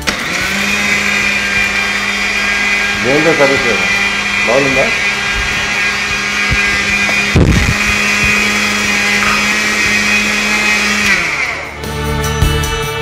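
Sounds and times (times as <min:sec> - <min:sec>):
mixer grinder motor whine: 0:00.0 - 0:12.3
background music: 0:08.0 - 0:13.0.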